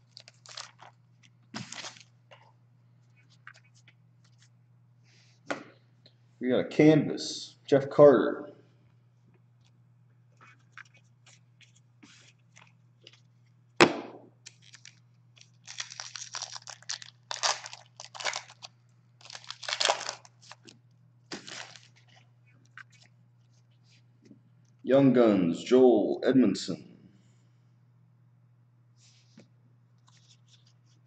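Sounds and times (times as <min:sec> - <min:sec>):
foil packs tearing and crinkling: 0:00.0 - 0:01.0, 0:01.6 - 0:02.1, 0:14.5 - 0:20.7, 0:21.3 - 0:22.0.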